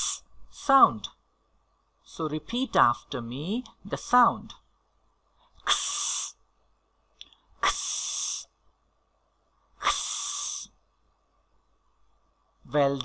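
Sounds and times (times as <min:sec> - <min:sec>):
person saying ks sound: 0:09.8 - 0:10.8.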